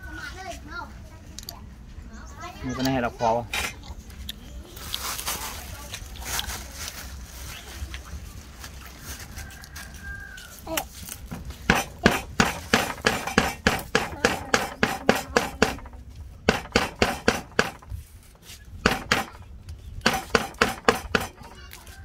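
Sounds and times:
stone pestle pounding leaves: 11.3 - 18.0, 18.8 - 19.4, 20.0 - 21.5.

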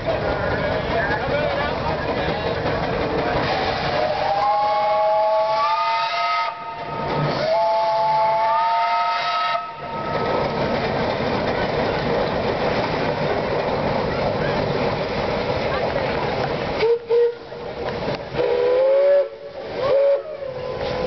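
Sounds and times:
steady steam hiss: 1.7 - 21.0
steam whistle blasts: 3.5 - 10.2, 16.8 - 17.5, 18.4 - 20.9.

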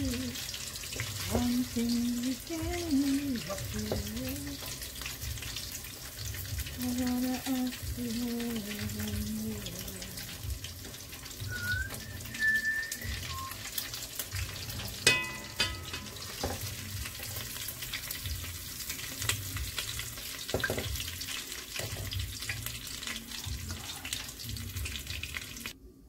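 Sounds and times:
chicken sizzling in oil: 0.0 - 25.8
metal clank with ring: 15.1 - 16.2.

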